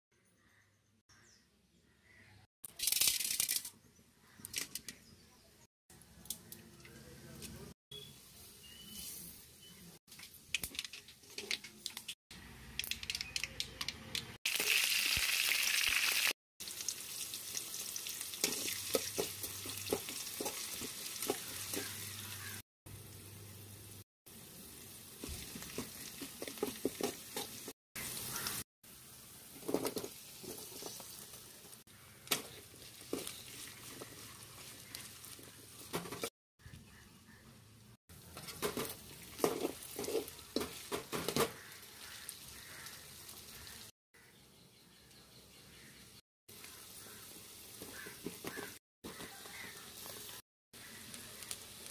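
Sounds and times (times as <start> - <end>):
oil sizzling in a pan: 14.5 - 36.0, 38.6 - 43.9, 46.5 - 51.9.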